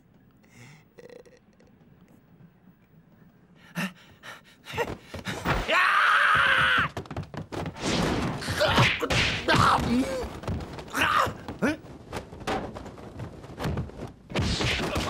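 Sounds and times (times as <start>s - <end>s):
punches and thuds: 6.4s - 15.0s.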